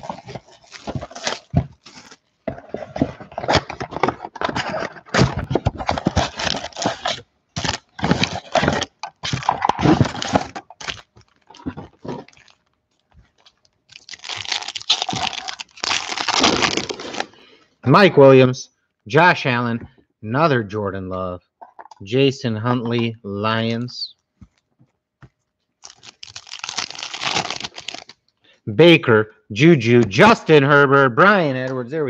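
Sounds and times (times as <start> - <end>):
foil pack crinkling: 0.0 - 2.4, 3.0 - 17.4, 25.8 - 28.2
plastic shrink-wrap crackling: 5.9 - 17.4, 25.8 - 28.2.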